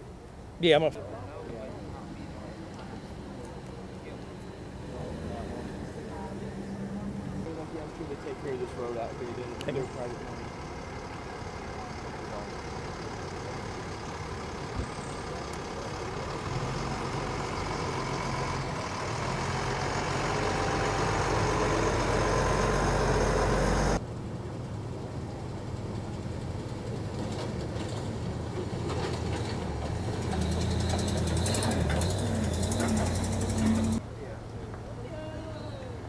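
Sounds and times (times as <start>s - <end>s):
fire truck engine: 0.0s - 35.0s
heavy truck engine running: 0.0s - 36.0s.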